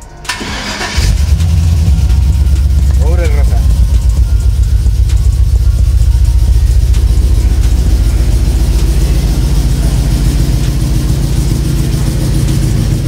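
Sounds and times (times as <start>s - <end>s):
pickup engine running: 0.0s - 13.0s.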